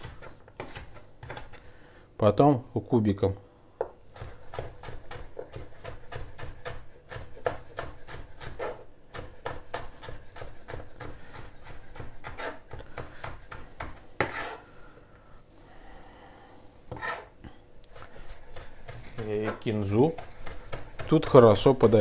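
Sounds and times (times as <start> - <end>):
knife chopping on wooden board: 0.0 - 1.6, 3.8 - 14.6, 16.9 - 17.3, 17.9 - 22.0.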